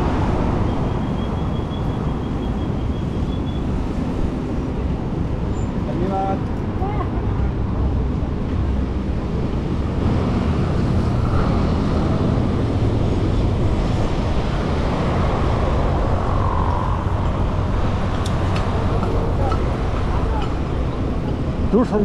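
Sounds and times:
wind rush on microphone: 0.0 - 22.0
tyres rolling on asphalt: 17.0 - 22.0.

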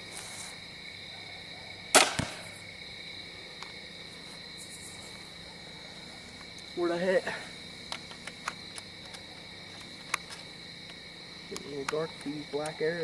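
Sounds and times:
crickets chirping: 0.0 - 13.0
arrow striking target: 1.9 - 2.6
bowstring snap: 2.0 - 2.5.

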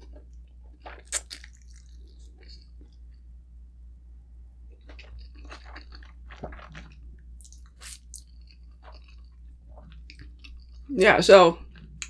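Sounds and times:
chewing noodles: 0.0 - 3.0, 4.8 - 10.9.

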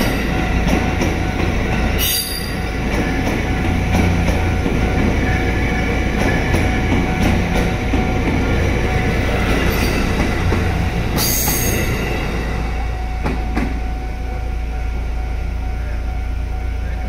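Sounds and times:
train rumbling past: 0.0 - 17.0
wheel squeal: 2.0 - 2.6.

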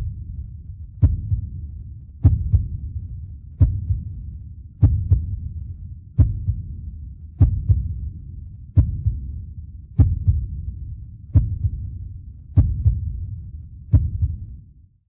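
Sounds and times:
heartbeat-like low thumps: 0.0 - 14.8
steady low rumble: 0.0 - 15.0.

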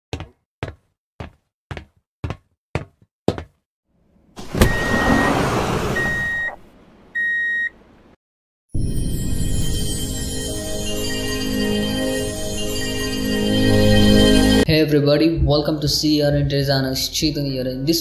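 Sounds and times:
sliding door hissing open: 4.4 - 6.6
electronic beeps: 6.0 - 6.6.

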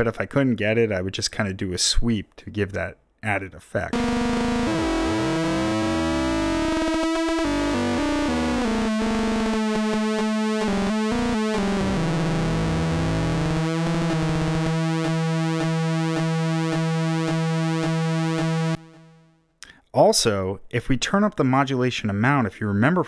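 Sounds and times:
buzzy analog synthesizer: 3.9 - 19.2.

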